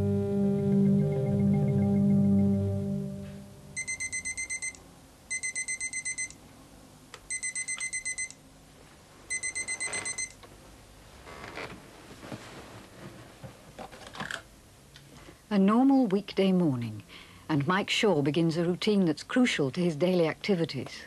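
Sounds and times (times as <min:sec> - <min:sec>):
digital alarm clock beeping: 0:03.8 - 0:06.4, 0:07.3 - 0:08.4, 0:09.3 - 0:10.4
soft rustling: 0:08.8 - 0:14.1.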